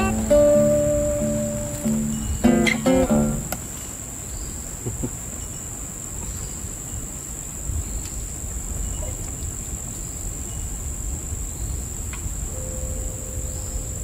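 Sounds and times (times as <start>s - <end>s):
faint steady hum: 0.0s - 4.6s
crickets chirping: 0.0s - 14.0s.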